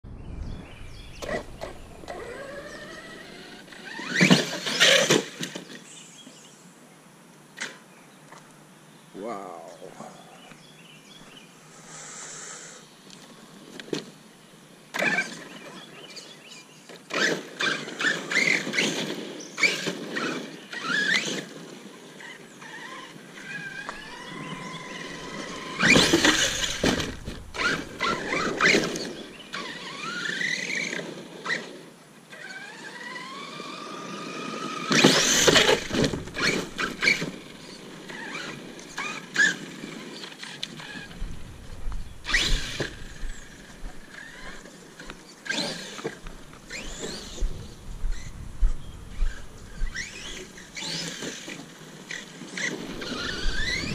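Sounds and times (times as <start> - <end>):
electric motor whining: 1.0 - 5.5, 22.2 - 31.7, 32.3 - 53.9
tyres scrabbling on gravel: 22.2 - 31.2, 34.7 - 53.9.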